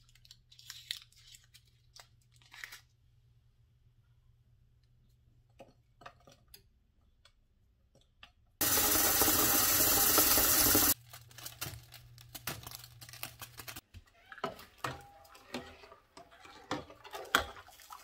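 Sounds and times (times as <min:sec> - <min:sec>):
tap water running into saucepan: 0:08.6 - 0:11.0.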